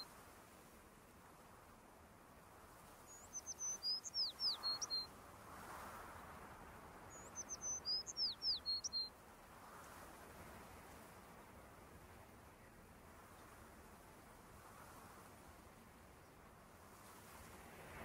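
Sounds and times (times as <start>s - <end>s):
songbird whistling: 3.1s - 5.1s, 7.1s - 9.1s.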